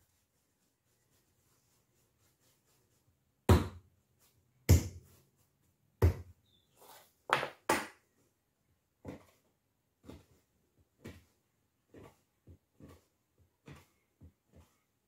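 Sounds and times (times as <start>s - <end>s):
dough thudding on a table: 3.5s - 3.9s.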